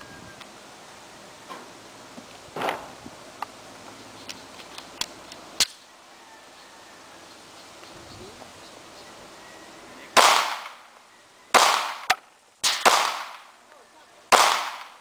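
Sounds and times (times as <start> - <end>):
pistol shots: 10.2 - 10.8, 11.5 - 13.5, 14.3 - 15.0.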